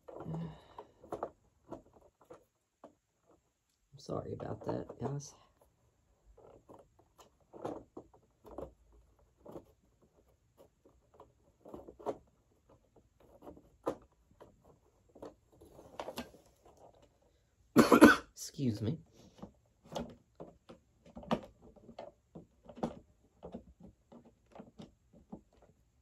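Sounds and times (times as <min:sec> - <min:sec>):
plastic clicks and knocks: 0:10.6 - 0:17.1, 0:19.4 - 0:25.9.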